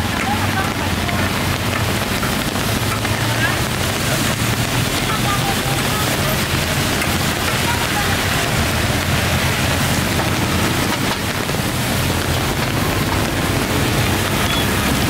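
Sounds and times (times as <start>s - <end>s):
motorbikes passing on wet road: 0.0s - 15.0s
steady rain falling: 0.0s - 15.0s.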